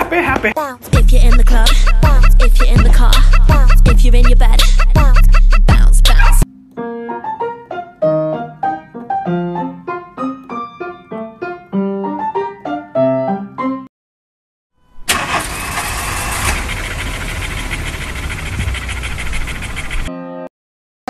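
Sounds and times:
piano music: 0:01.2 - 0:13.9, 0:20.1 - 0:20.5
noisy rumble: 0:16.4 - 0:20.1.

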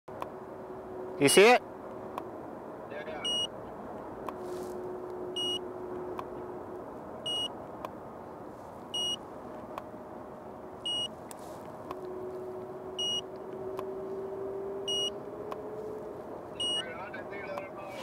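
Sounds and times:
short high ready beep: 0:16.6 - 0:16.8.

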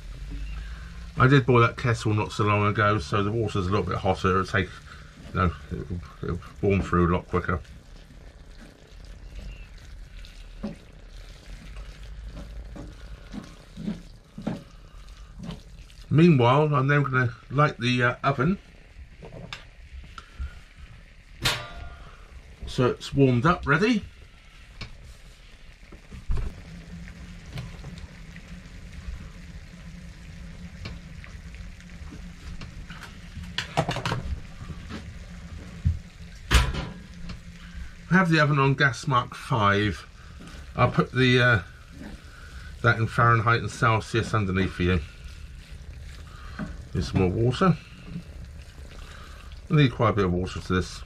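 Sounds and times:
mince sizzling in a frying pan: 0:00.0 - 0:51.0
wooden spoon scraping a pan: 0:06.4 - 0:16.3.

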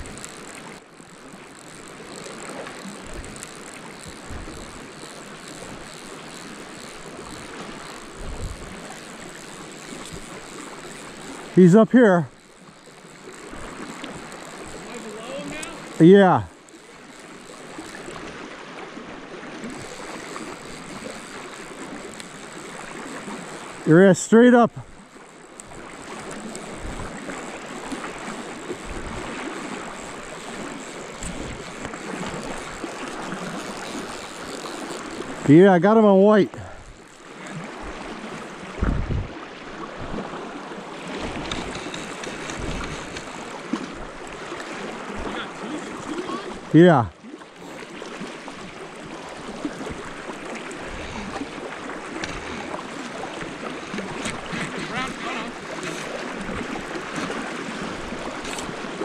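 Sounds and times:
flowing creek water: 0:00.0 - 0:59.0
faint short ticks: 0:41.4 - 0:44.0.

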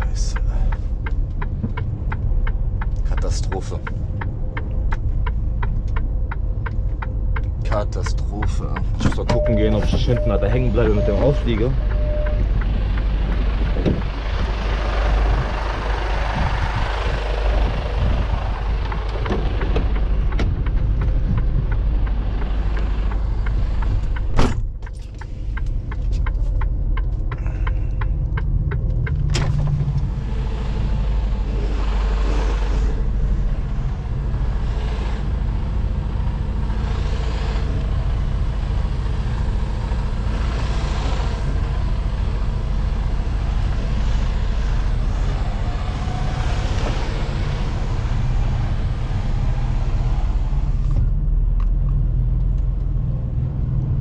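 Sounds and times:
soft ticks: 0:00.0 - 0:09.0, 0:18.8 - 0:29.3
diesel truck engine running: 0:00.0 - 0:54.0
door slamming: 0:24.3 - 0:24.7.

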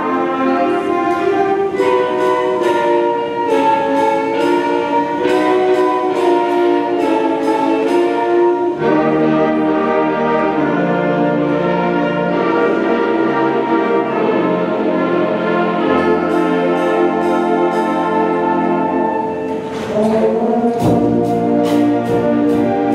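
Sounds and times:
concert band playing sustained chords: 0:00.0 - 0:22.9
sharp percussion strikes: 0:00.1 - 0:10.0, 0:14.6 - 0:22.9.

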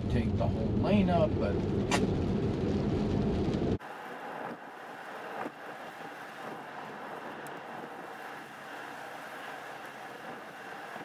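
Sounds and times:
low rumble: 0:00.0 - 0:09.1
tyre hiss on wet road: 0:03.8 - 0:11.0.

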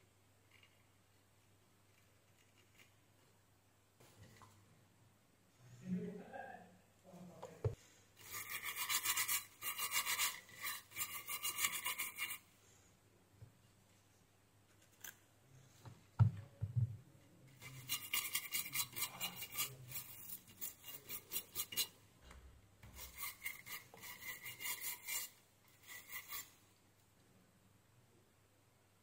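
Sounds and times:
brush scrubbing circuit board: 0:08.2 - 0:12.5, 0:17.5 - 0:22.0, 0:22.8 - 0:26.6.

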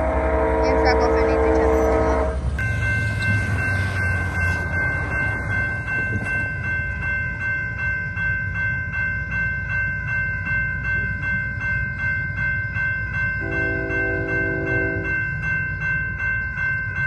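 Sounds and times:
railroad crossing bell ringing: 0:00.0 - 0:17.0.

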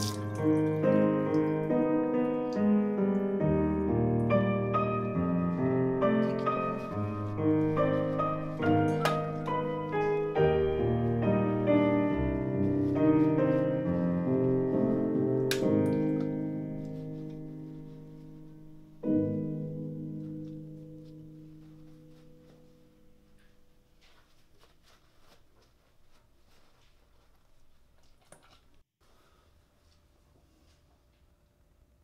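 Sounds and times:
gentle piano music: 0:00.0 - 0:24.1.

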